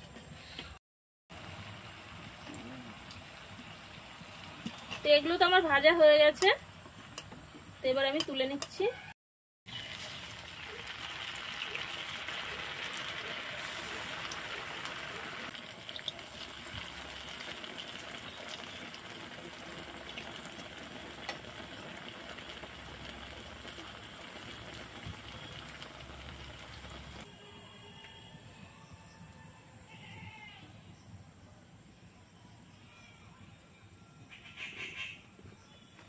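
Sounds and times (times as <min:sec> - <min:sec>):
food deep-frying in oil: 0:01.3 - 0:07.3, 0:09.7 - 0:27.3.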